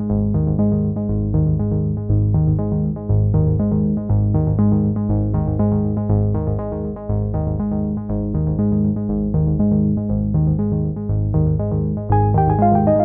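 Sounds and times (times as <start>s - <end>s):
low bass notes: 0.0s - 13.0s
repeating synthesizer notes: 12.1s - 13.0s.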